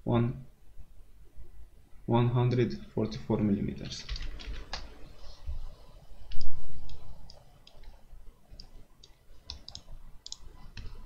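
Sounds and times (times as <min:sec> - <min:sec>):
mouse and keyboard clicks: 0:08.6 - 0:11.0.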